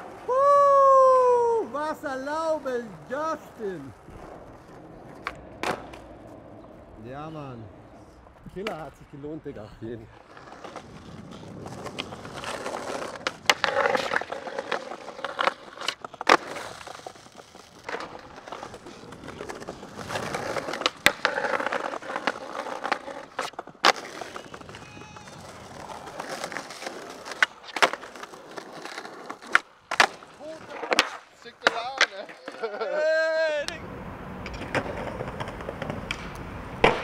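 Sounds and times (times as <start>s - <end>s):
skateboard popping and landing: 0.0s - 0.3s, 3.9s - 6.9s, 10.1s - 32.8s, 34.4s - 37.0s
skateboard wheels rolling on concrete: 0.0s - 37.0s.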